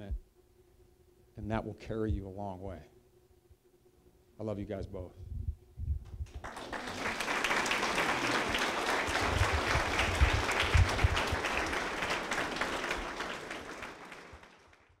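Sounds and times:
crowd applauding: 6.3 - 15.0.

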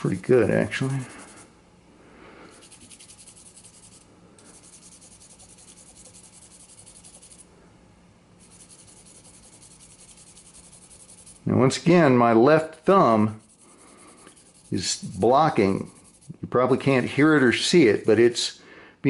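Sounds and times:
sandpaper scratching: 0.0 - 1.4, 2.6 - 7.4, 8.4 - 11.4, 13.0 - 18.4.

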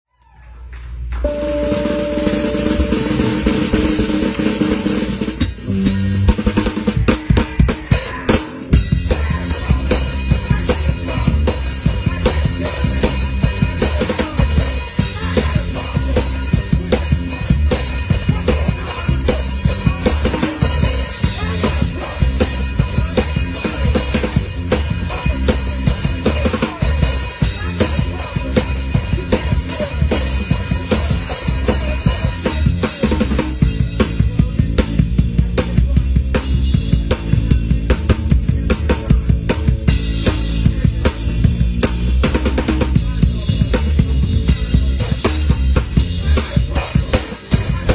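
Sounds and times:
low bass line: 1.2 - 5.0
rock band playing live: 1.2 - 47.9
drum kit hits: 1.3 - 6.9.

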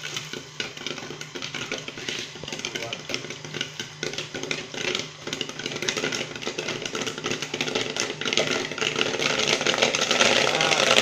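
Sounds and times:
corn popping: 0.0 - 11.0
stirring motor hum: 0.0 - 11.0.

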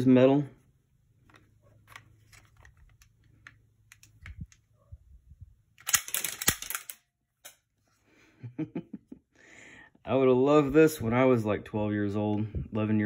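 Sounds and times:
toy gun mechanism clicking: 5.8 - 7.6.

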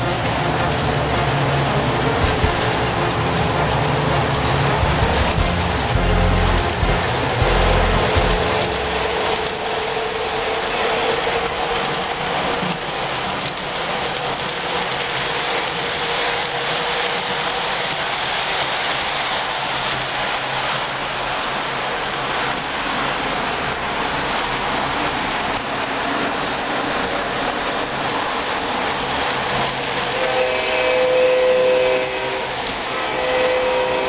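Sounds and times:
held multi-pitch tone: 0.0 - 10.7
model train rolling: 0.0 - 34.0.

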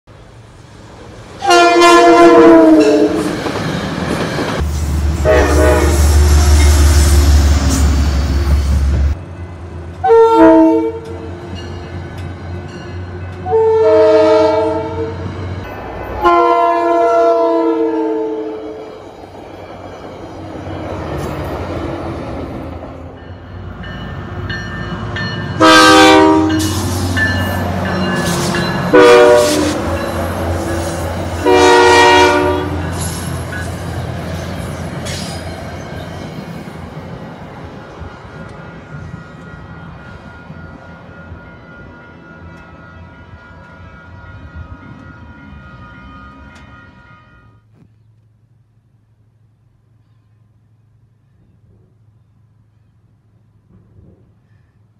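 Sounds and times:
train air horn blasts: 1.4 - 3.4, 4.8 - 8.5, 10.0 - 11.4, 13.4 - 15.3, 16.2 - 19.0, 25.6 - 27.2, 28.2 - 33.2, 38.2 - 47.7.

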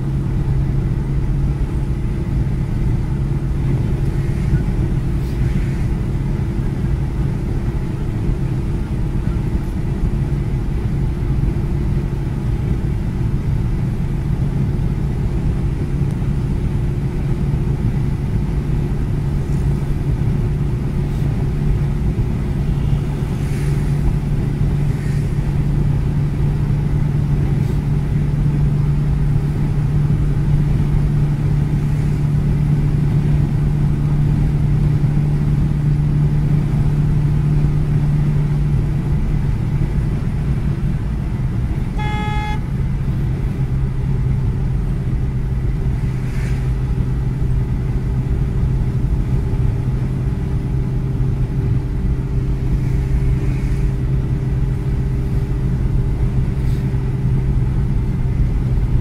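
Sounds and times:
car engine and road noise: 0.0 - 59.0
vehicle horn toot: 22.6 - 23.2, 41.9 - 42.8.

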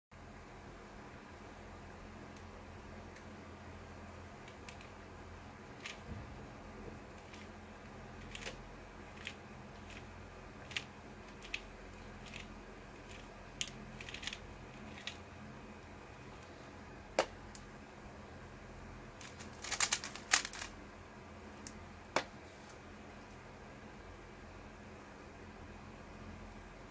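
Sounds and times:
puzzle cube layers clicking: 8.2 - 15.2, 19.2 - 20.7.

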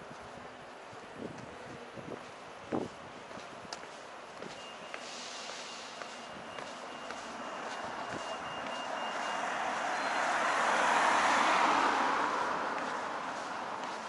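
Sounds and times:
car passing: 5.0 - 14.0.

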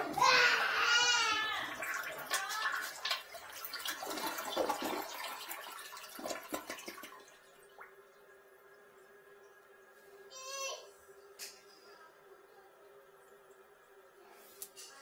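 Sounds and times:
water splashing in toilet bowl: 0.0 - 8.9
faint steady hum: 0.0 - 15.0.

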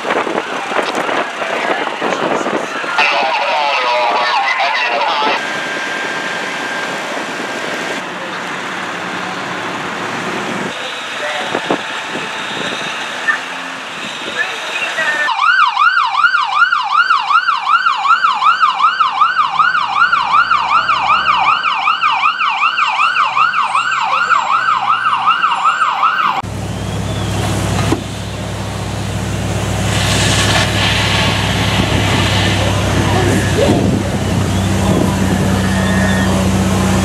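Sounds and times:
low engine drone: 2.7 - 14.0, 26.4 - 37.0
electronic siren yelping: 15.1 - 26.4.

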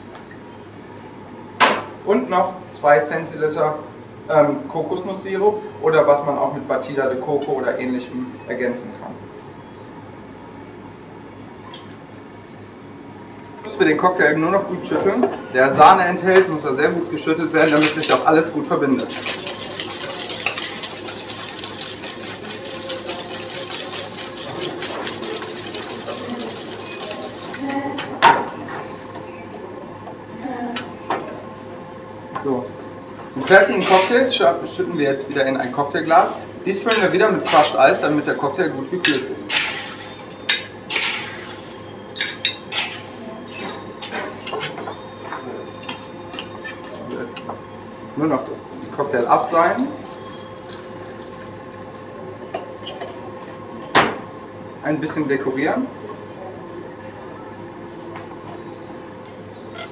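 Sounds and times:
ice rattling in cocktail shaker: 17.4 - 27.7
bar tools clinking against glass: 42.1 - 44.8.

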